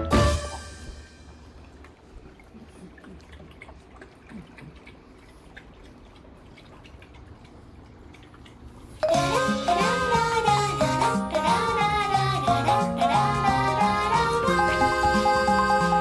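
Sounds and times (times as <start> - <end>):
upbeat music: 0.0 - 1.0, 9.0 - 16.0
dog lapping water: 1.4 - 10.5.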